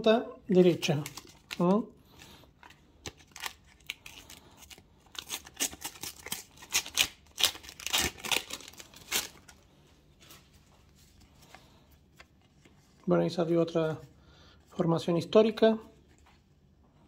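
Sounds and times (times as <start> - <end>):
paper packets tearing: 0.5 - 9.6.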